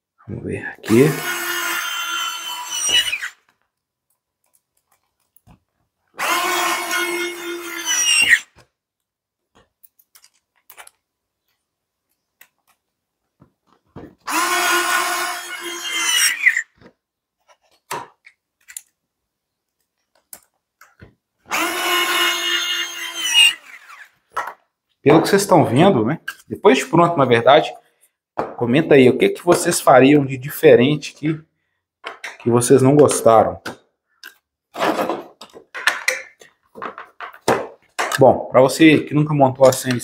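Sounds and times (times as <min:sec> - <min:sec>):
electric screwdriver motor: 0:00.9 - 0:03.4, 0:06.2 - 0:08.5, 0:14.2 - 0:16.6, 0:21.5 - 0:24.1.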